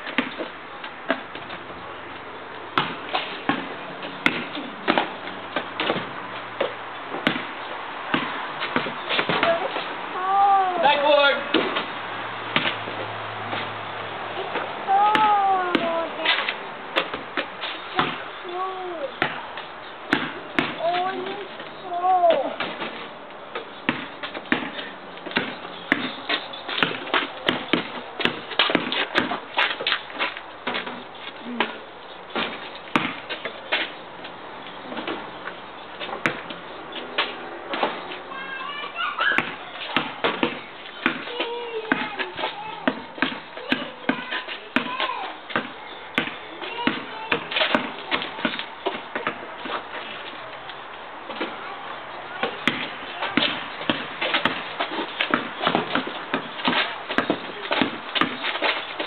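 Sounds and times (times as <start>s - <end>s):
basketball bouncing on asphalt: 0.0s - 10.0s, 10.8s - 59.0s
ball striking backboard and rim: 0.1s - 0.5s, 2.8s - 9.6s, 12.5s - 12.8s, 14.5s - 18.3s, 19.2s - 19.5s, 20.1s - 21.1s, 23.9s - 29.4s, 32.4s - 33.5s, 39.3s - 49.8s, 52.4s - 58.8s.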